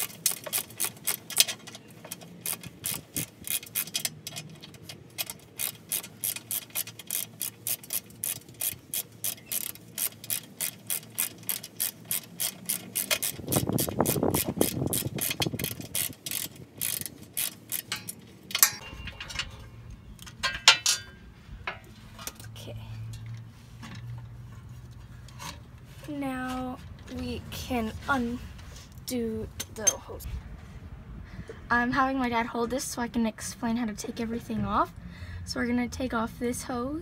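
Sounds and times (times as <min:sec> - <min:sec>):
ratchet wrench clicking: 0:00.0 - 0:18.8.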